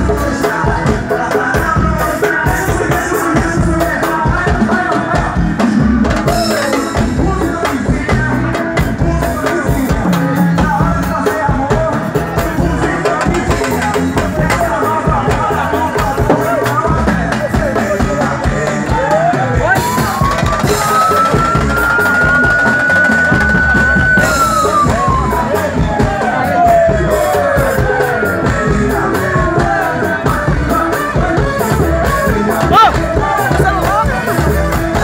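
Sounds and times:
live band playing with drums: 0.0s - 35.0s.

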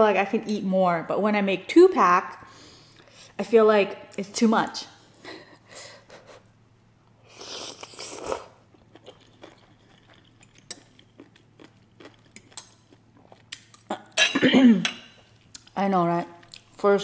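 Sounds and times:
soft chewing: 7.1s - 14.2s, 15.1s - 17.0s.

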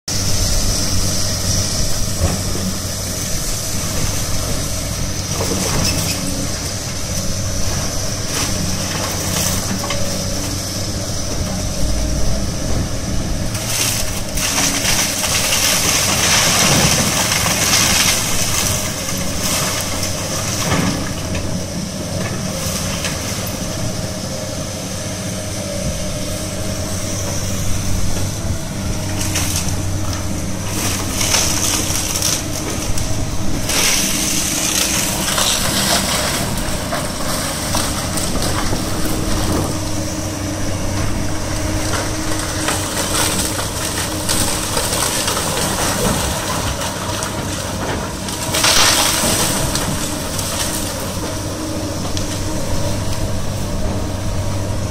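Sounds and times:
excavator diesel engine running: 0.1s - 54.9s
masonry and debris crashing down: 13.5s - 21.2s, 42.5s - 51.2s.

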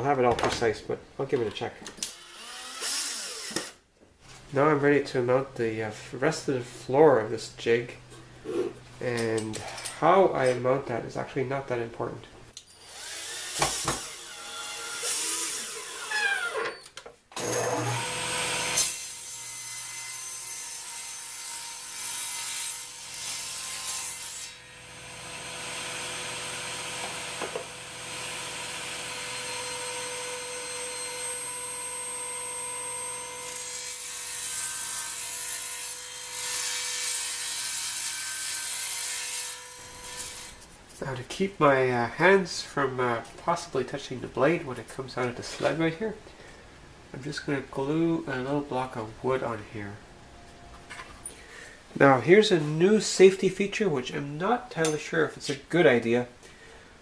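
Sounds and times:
cordless drill driving screws: 2.0s - 3.8s
table saw cutting wood: 12.7s - 16.8s, 17.4s - 40.6s.

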